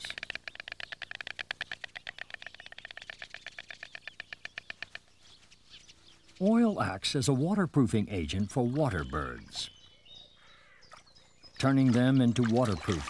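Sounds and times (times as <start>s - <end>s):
stork clattering its bill: 0.0s - 5.1s.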